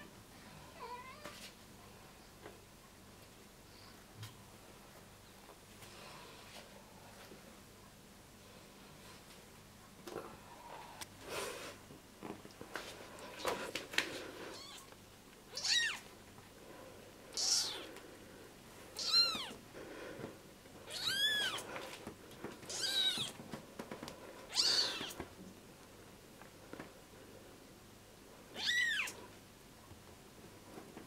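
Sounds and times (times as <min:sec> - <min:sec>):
kitten meowing: 0:14.6 - 0:14.9, 0:15.5 - 0:16.0, 0:17.4 - 0:17.9, 0:19.0 - 0:19.6, 0:20.9 - 0:21.6, 0:22.7 - 0:23.4, 0:24.5 - 0:25.2, 0:28.6 - 0:29.2.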